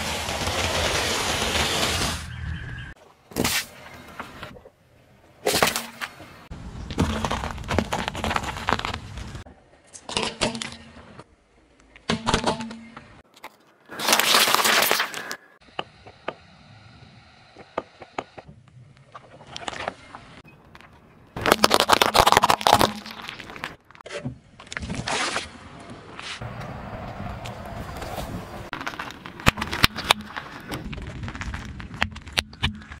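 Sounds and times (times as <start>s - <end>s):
plastic crackling under a tyre: 6.8s - 9.4s, 20.6s - 24.0s, 26.4s - 33.0s
tyre crunching a vegetable: 21.4s - 23.8s.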